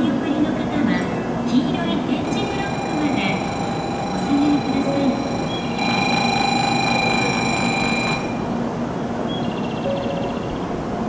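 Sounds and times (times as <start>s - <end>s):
steady hum and hiss: 0.0s - 11.0s
held electronic tone: 2.1s - 8.5s
short pulsing beep: 2.2s - 8.4s.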